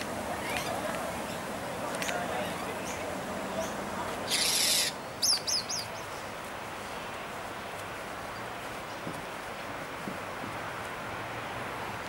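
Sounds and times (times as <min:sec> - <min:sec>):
bird chirping: 0:03.6 - 0:06.2.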